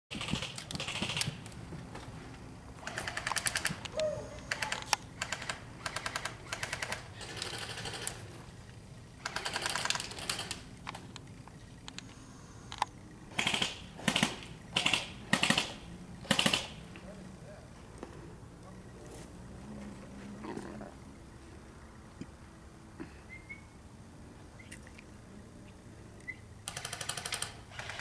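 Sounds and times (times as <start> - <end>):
airsoft guns firing bursts: 0.1 - 1.4, 2.8 - 3.8, 4.5 - 8.2, 9.2 - 10.7, 13.3 - 16.8, 26.7 - 28.0.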